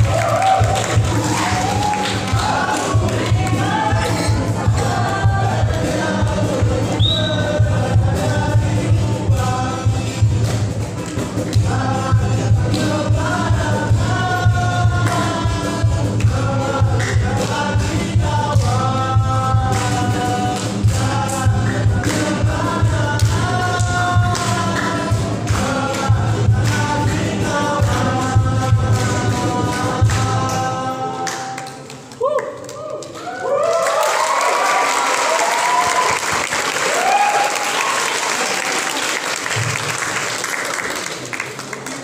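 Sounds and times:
percussion hits: 0.0 - 31.9
group of voices singing: 0.0 - 32.2.

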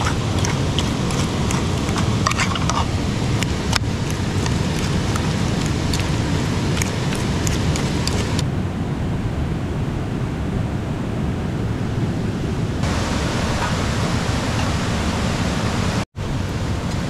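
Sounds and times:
river rushing over rocks: 0.0 - 8.4, 12.8 - 16.8.

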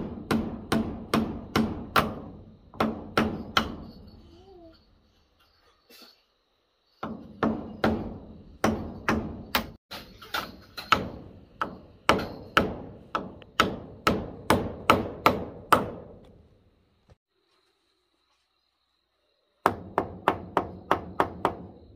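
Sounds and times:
tool striking wood: 0.0 - 3.9, 7.0 - 16.3.

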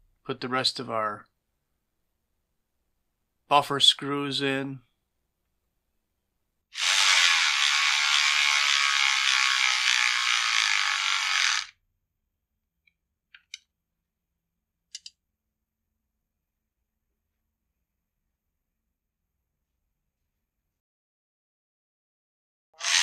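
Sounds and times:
electric ratchet whirring: 6.8 - 11.8, 22.8 - 23.0.

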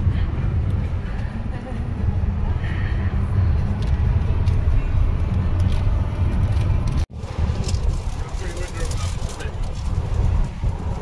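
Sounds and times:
road and engine noise in car cabin: 0.0 - 11.0.

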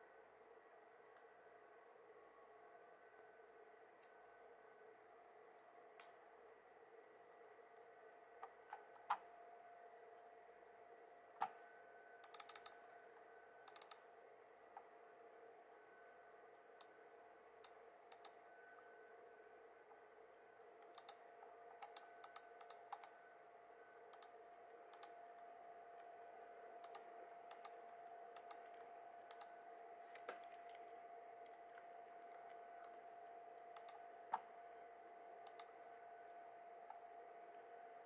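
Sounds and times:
faint steady hum: 0.0 - 38.0
laptop keyboard typing clicks: 12.2 - 12.9, 13.6 - 14.0, 17.6 - 18.4, 20.8 - 21.2, 21.8 - 23.2, 24.1 - 25.2, 26.8 - 29.5, 30.1 - 34.5, 35.4 - 35.7.

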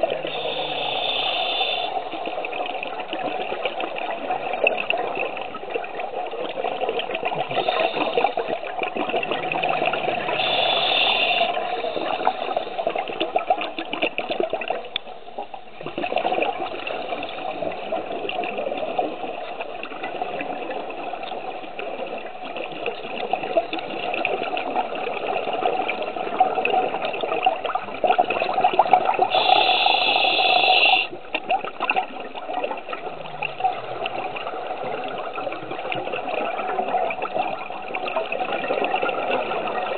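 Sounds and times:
scuba regulator bubbles gurgling: 0.0 - 39.9
bright hiss: 10.4 - 12.6, 29.3 - 31.1.

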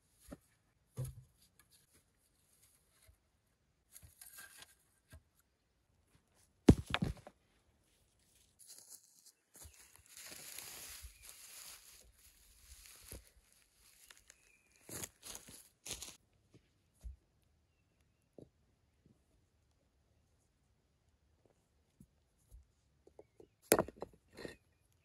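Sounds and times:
dry grass rustling: 8.3 - 16.2.

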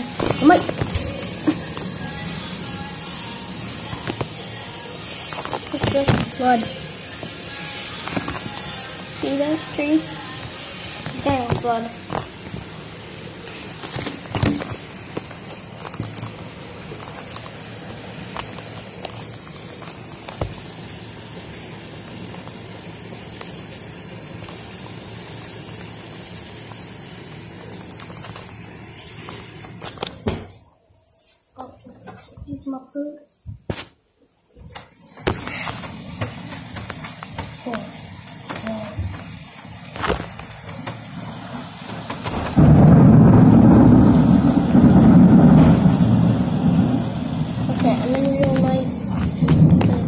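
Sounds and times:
heavy rain pouring: 0.0 - 30.4, 34.7 - 50.0
low thunder rumble: 42.3 - 50.0.

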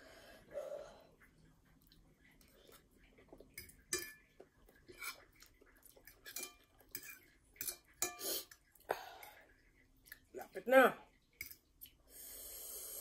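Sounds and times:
fork clinking on a plate: 3.6 - 4.3, 6.3 - 8.2.

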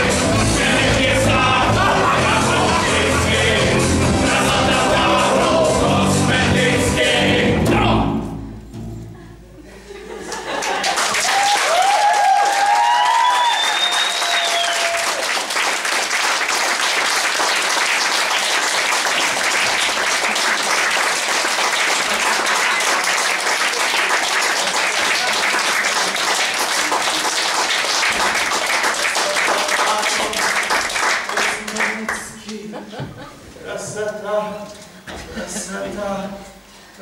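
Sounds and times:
audience applauding: 10.3 - 32.2.

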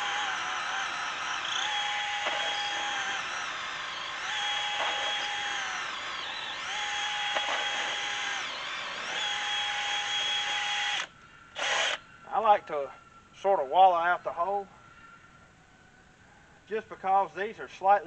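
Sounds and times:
electric drill boring into wood: 0.0 - 12.0.

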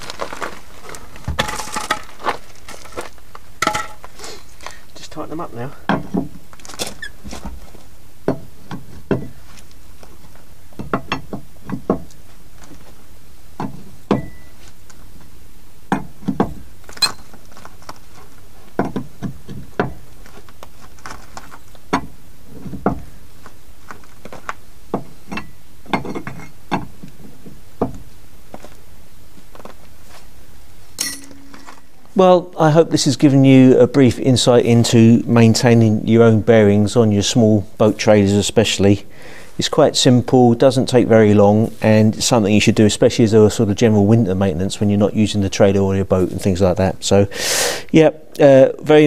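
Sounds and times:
wheel brace on wheel nuts: 10.7 - 12.2, 15.9 - 23.1, 24.2 - 28.1.

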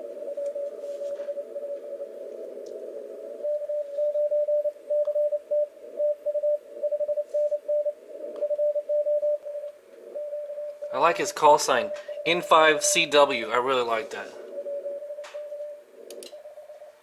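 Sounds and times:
receiver hiss: 0.0 - 17.0
morse code tone: 3.4 - 15.8.

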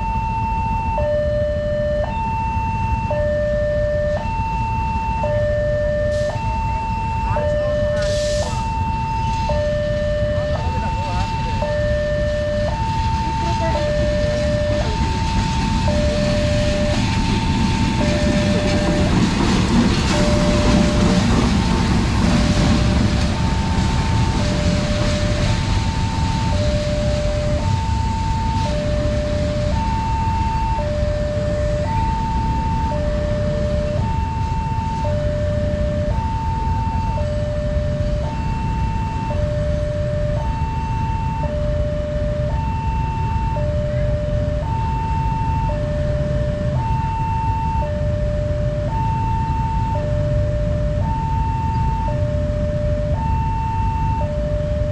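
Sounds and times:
diesel locomotive rumble: 0.0 - 54.9
level-crossing two-tone alarm chime: 0.0 - 54.9.

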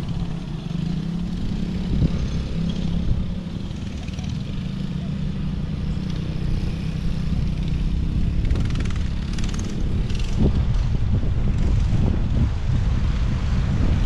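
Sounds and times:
wind rumbling on microphone: 0.0 - 4.7, 5.3 - 14.0
quad engine running: 0.0 - 14.0.

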